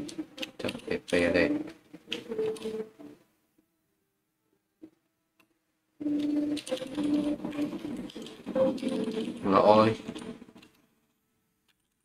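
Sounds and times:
keyboard typing: 2.1s - 2.9s, 6.0s - 10.8s.

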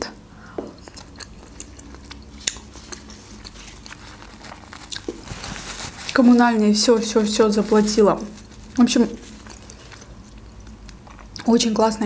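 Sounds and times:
person chewing with mouth clicks: 0.4s - 5.3s, 9.2s - 11.5s
paper napkin rubbing: 2.7s - 9.9s.

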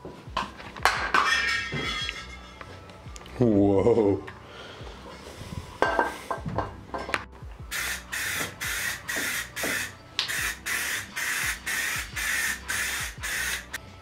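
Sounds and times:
spray can hissing bursts: 7.7s - 13.8s.

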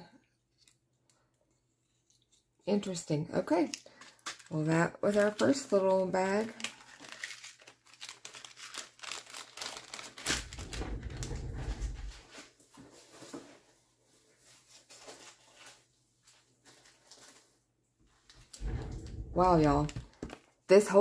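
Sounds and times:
plastic bags crinkling: 3.8s - 12.1s, 14.6s - 17.6s, 18.7s - 20.6s
dull low rumble: 18.6s - 20.1s.

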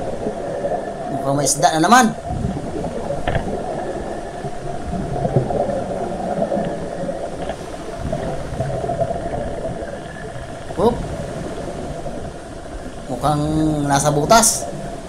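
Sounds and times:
muffled underwater rushing: 0.0s - 15.0s
faint clicks: 2.2s - 10.8s.

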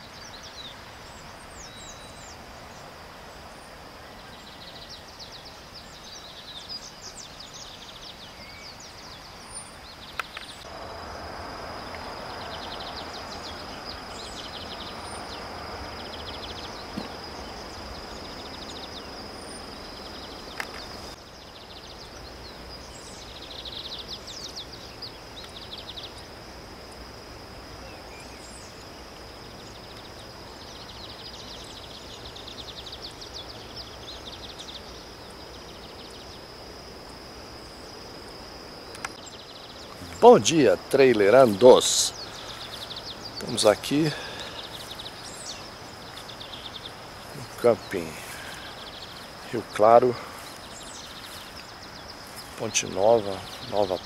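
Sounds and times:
birds chirping: 0.0s - 54.0s
high insect drone: 0.0s - 54.0s
river water rushing: 10.7s - 21.2s, 39.8s - 54.0s.

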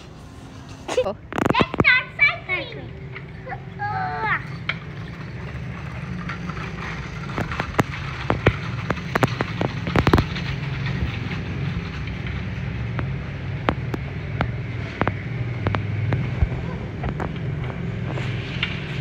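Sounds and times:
sharp crackles and clicks: 0.6s - 19.0s
wind rumble on microphone: 4.6s - 19.0s.

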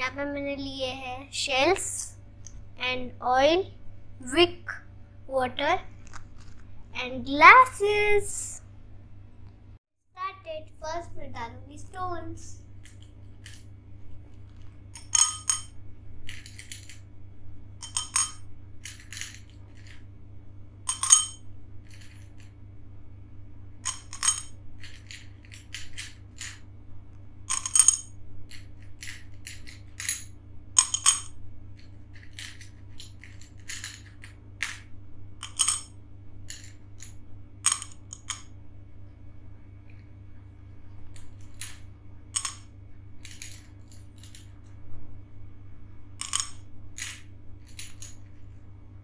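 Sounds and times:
glass pebbles clinking in a glass: 15.0s - 17.0s, 17.8s - 20.0s, 20.9s - 22.3s, 23.9s - 26.6s, 27.5s - 31.4s, 35.4s - 35.9s.

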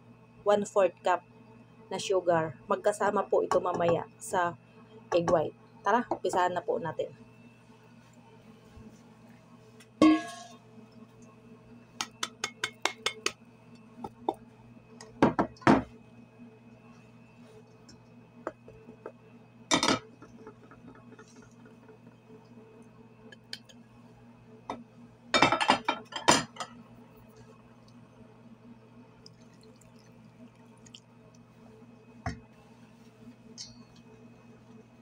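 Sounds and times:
faint steady hum: 0.0s - 35.0s
glass dishes clinking on steel bowl: 10.0s - 10.6s.

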